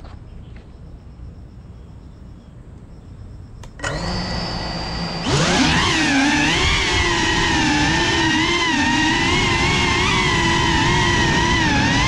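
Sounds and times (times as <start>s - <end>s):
drone motors whining: 3.6s - 12.0s.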